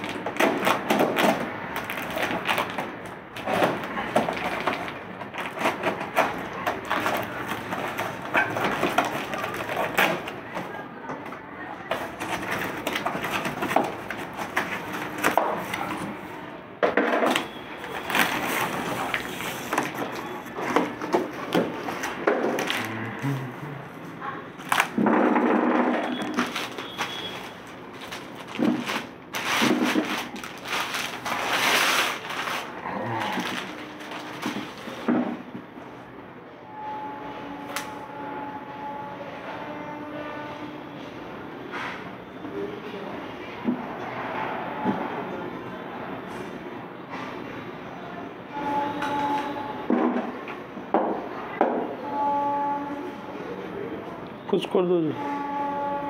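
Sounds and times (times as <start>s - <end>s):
cardboard ripping and crackling: 0.0s - 10.4s, 12.0s - 16.1s, 17.3s - 23.0s, 24.6s - 25.0s, 26.1s - 35.0s
packing tape ripping: 0.0s - 10.4s, 17.3s - 23.5s, 24.6s - 25.0s, 26.0s - 35.1s.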